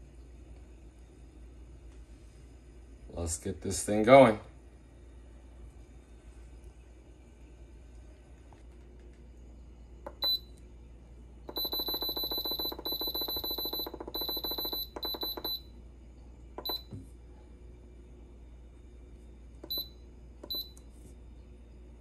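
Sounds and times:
pressure cooker button beeps: 10.1s - 10.5s, 11.5s - 15.6s, 16.6s - 16.9s, 19.6s - 20.8s.

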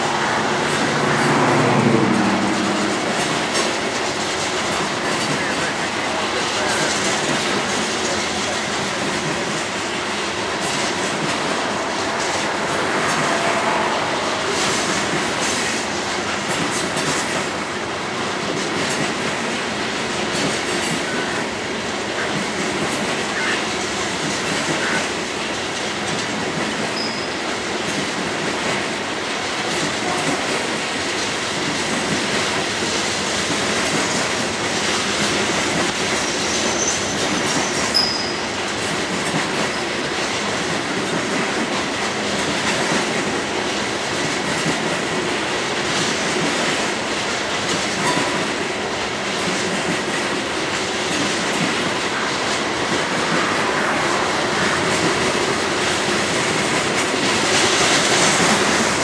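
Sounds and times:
train wheels on rails: 0.0s - 59.0s
high wheel squeals: 27.0s - 27.4s, 36.2s - 38.5s.

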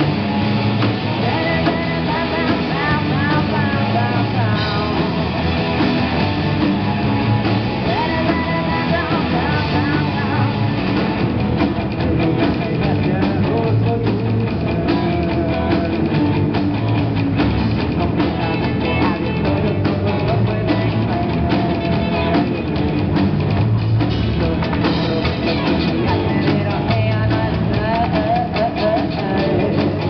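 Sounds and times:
drum kit: 0.0s - 30.0s
electric guitars: 0.0s - 30.0s
woman singing into a microphone: 1.2s - 5.0s, 7.9s - 10.6s, 26.2s - 30.0s.

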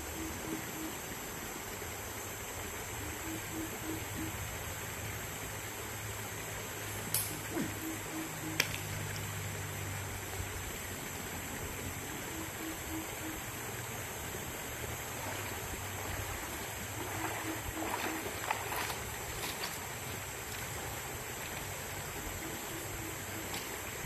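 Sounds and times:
river flowing over rapids: 4.4s - 24.0s
splashes of wading: 14.4s - 24.0s.

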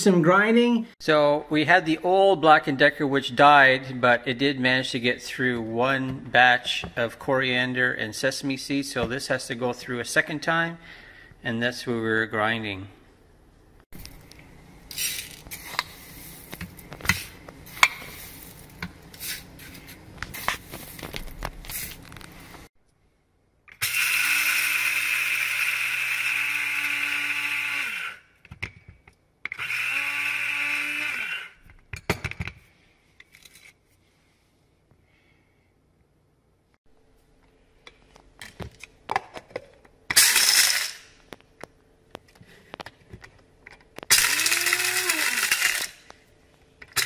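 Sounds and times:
electric blade grinder whining: 23.8s - 28.2s, 29.5s - 31.6s, 44.1s - 46.0s
seeds whirling in grinder cup: 44.1s - 46.0s.

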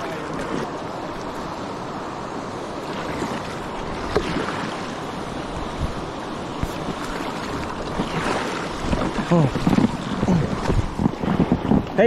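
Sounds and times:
river water rushing: 0.0s - 12.0s
wind buffeting microphone: 0.0s - 12.0s.

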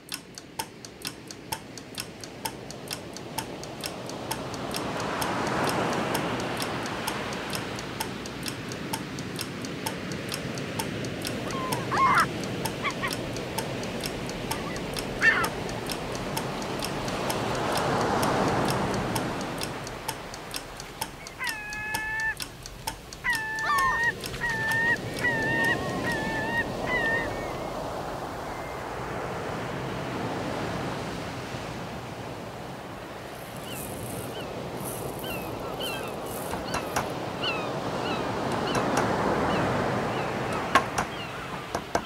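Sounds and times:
fast regular ticking: 0.0s - 26.8s, 33.3s - 37.2s
steady rushing wind or surf: 0.0s - 42.0s
small high chirps: 11.2s - 13.2s, 14.5s - 16.0s, 20.6s - 27.6s, 33.4s - 38.2s.

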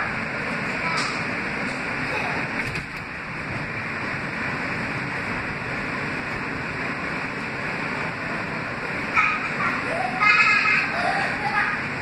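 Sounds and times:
subway train wheels on rail: 0.0s - 12.0s.

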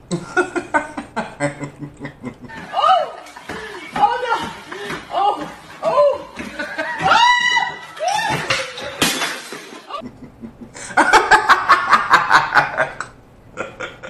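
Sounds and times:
man laughing: 0.1s - 3.9s, 9.9s - 14.0s.

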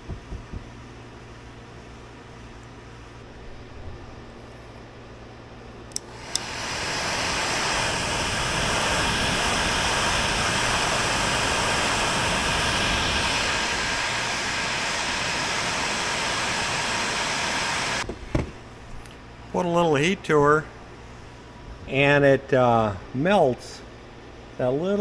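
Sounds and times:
heat gun switch clicks: 5.9s - 6.5s
heat gun blowing hot air: 6.0s - 18.1s.

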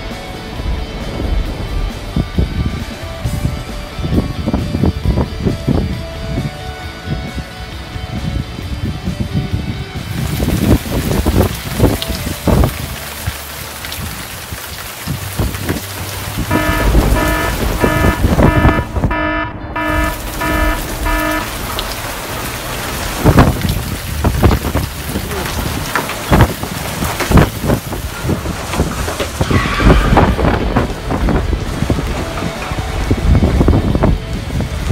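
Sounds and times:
heavy rain falling: 0.0s - 5.8s, 10.0s - 34.9s
wind buffeting microphone: 0.1s - 13.0s, 13.9s - 34.9s
electronic alarm beeping: 16.5s - 22.4s.

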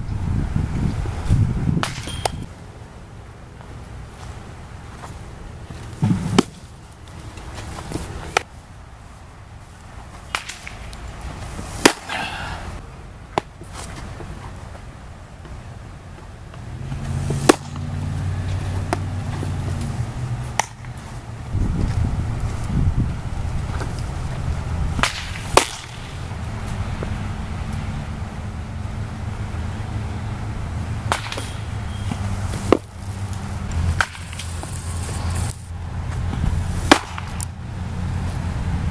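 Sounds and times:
baseballs smacking into leather mitt: 1.8s - 2.5s, 5.7s - 8.5s, 10.1s - 12.5s, 13.3s - 14.8s, 16.2s - 21.2s, 24.9s - 27.2s, 31.0s - 34.8s, 36.1s - 37.5s
ball smacking into leather mitt: 10.3s - 12.2s, 25.0s - 26.2s, 36.1s - 37.4s
low steady rumble: 14.0s - 38.9s.

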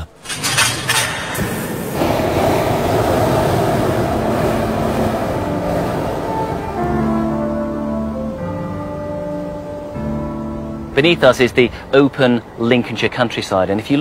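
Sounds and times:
steady rushing machine noise: 1.0s - 7.8s
held music notes: 2.7s - 12.9s.

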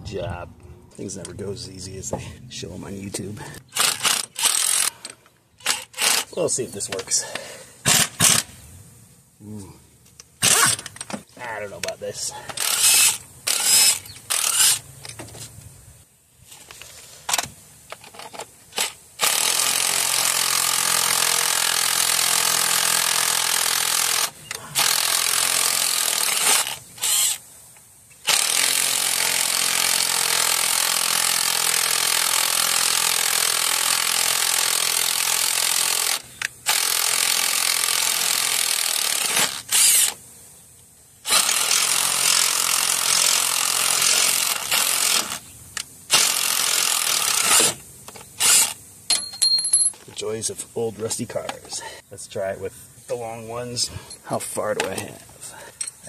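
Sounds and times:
cordless impact wrench running: 3.7s - 6.3s, 7.9s - 8.5s, 12.6s - 14.8s, 18.7s - 27.4s, 28.2s - 40.2s, 41.3s - 45.5s, 46.1s - 48.8s.

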